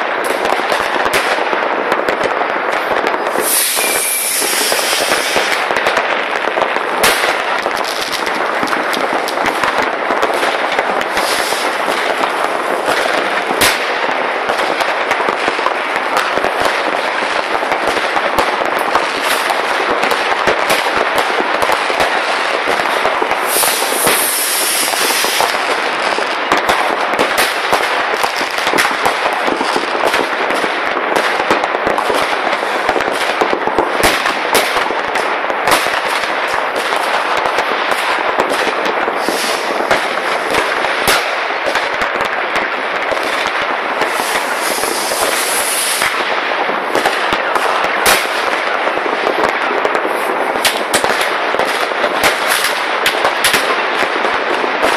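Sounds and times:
fireworks and firecrackers crackling: 0.0 - 54.9
high firework hiss: 3.0 - 17.8, 20.8 - 26.3, 35.7 - 52.9.

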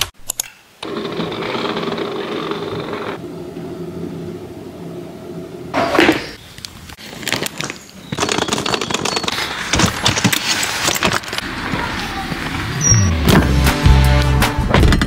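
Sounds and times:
packing clicks knocks and rattles: 7.0 - 11.4.

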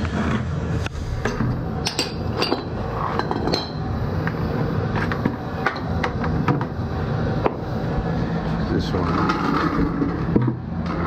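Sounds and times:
steady low hum: 0.0 - 11.0
tools and bucket clinking: 1.3 - 3.8.

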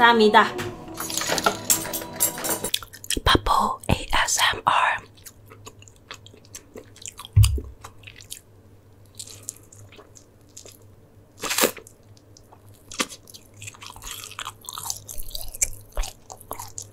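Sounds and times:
person biting and chewing: 2.7 - 3.2, 5.1 - 8.5, 9.1 - 16.9
low thump: 7.4 - 7.8.

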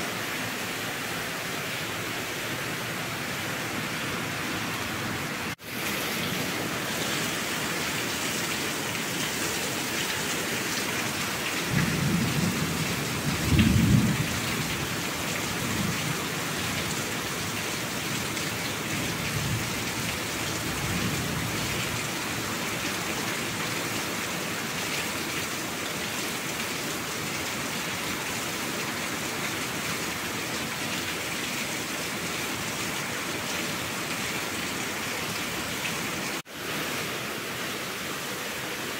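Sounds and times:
heavy rain: 0.0 - 38.9
thunder rumbling: 11.7 - 14.6.

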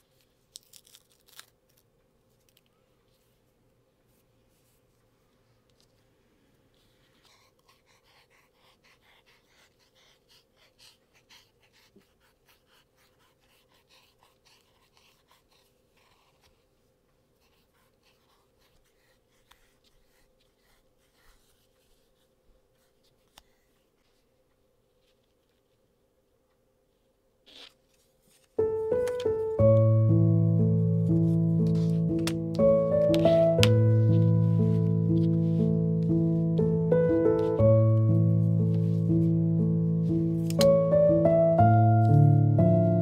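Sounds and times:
soft scratching strokes: 6.7 - 25.9.

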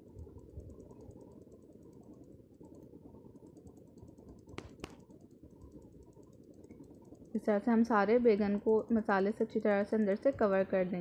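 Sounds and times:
sharp clicks: 0.1 - 7.6
fingers pressing moist paste: 3.5 - 6.8.

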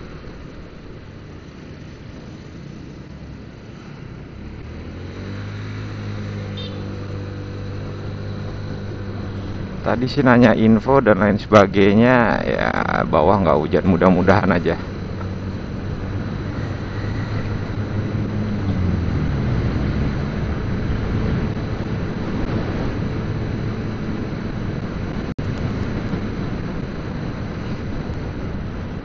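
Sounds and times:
motorcycle engine running: 0.0 - 29.0
wind noise on microphone: 14.8 - 29.0.

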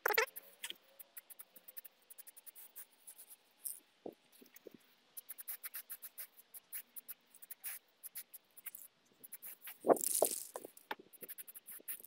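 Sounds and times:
magpies chattering: 0.0 - 0.4.

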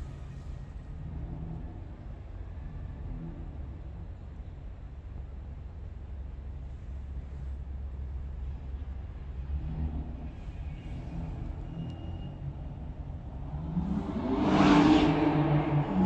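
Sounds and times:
car driving past: 9.6 - 16.0.

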